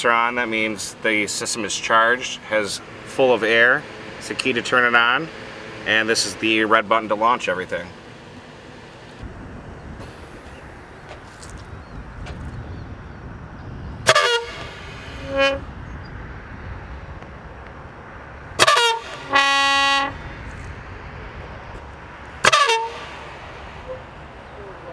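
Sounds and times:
steady horn tone: 14.0 - 16.6, 18.5 - 21.8, 22.4 - 24.9.

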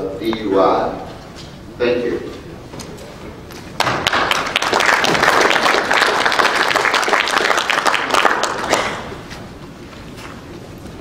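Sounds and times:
audience applauding: 3.8 - 9.3.

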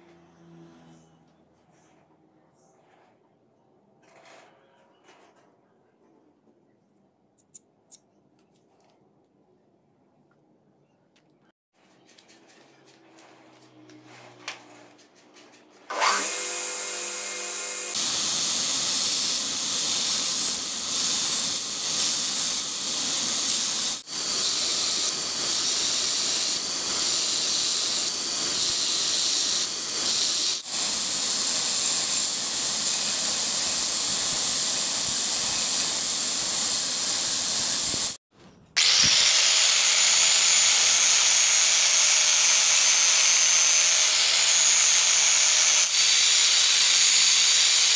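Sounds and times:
angle grinder sanding: 15.8 - 38.2, 38.8 - 47.9
belt grinder grinding metal: 15.9 - 38.2, 38.8 - 47.9.

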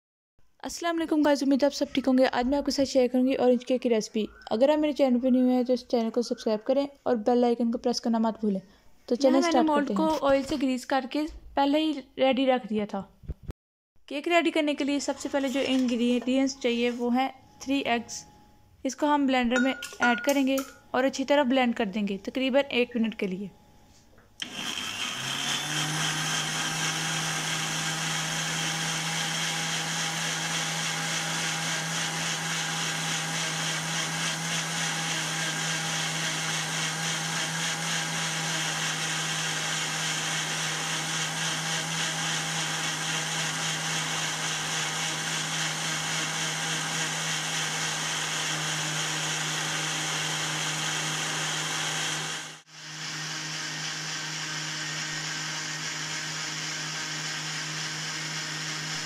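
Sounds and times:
blender motor running: 24.4 - 59.0.

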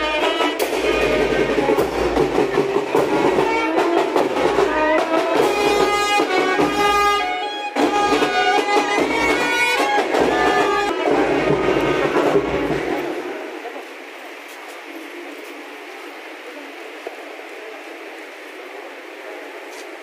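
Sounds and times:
wind and brass band playing: 0.0 - 13.6.

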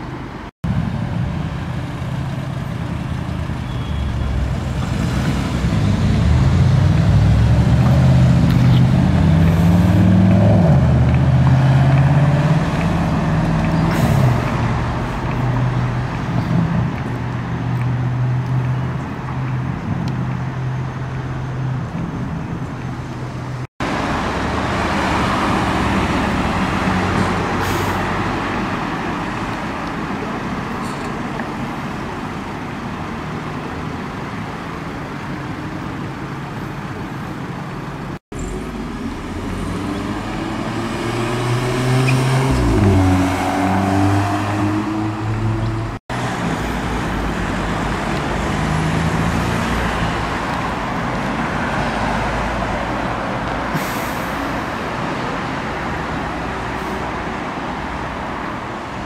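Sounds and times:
car engines running: 0.0 - 59.0
road noise: 0.0 - 59.0
car accelerating away: 4.2 - 14.8, 38.4 - 46.4.

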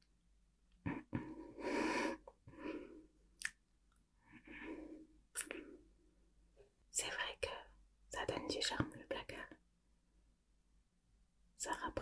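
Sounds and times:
woman breathing close: 0.9 - 3.2, 4.3 - 5.8
mouth clicks: 3.4 - 3.6.

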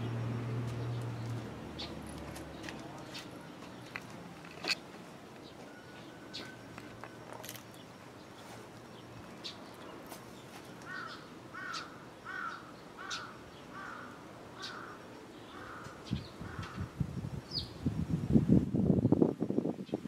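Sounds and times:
crow cawing: 10.8 - 16.8.

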